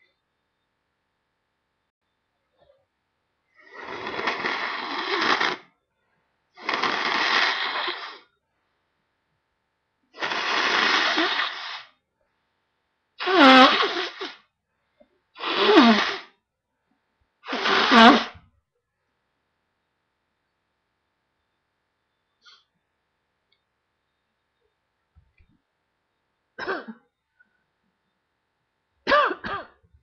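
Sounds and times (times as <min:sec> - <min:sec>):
person blowing nose: 0:03.6 - 0:05.7, 0:06.6 - 0:08.3, 0:10.2 - 0:12.0, 0:13.2 - 0:14.4, 0:15.4 - 0:16.4, 0:17.4 - 0:18.4
person sneezing: 0:17.5 - 0:18.4, 0:29.1 - 0:29.8.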